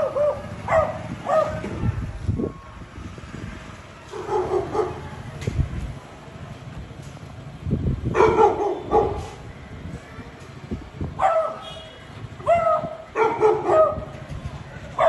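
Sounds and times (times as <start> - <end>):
dog barking: 0.0 - 1.6, 4.2 - 5.0, 8.2 - 9.3, 11.2 - 11.6, 12.4 - 14.1.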